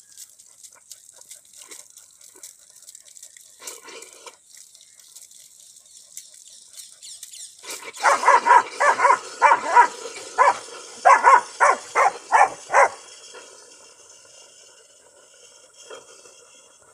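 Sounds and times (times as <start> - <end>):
tap water running: 0.0 - 16.9
dog barking: 8.0 - 13.0.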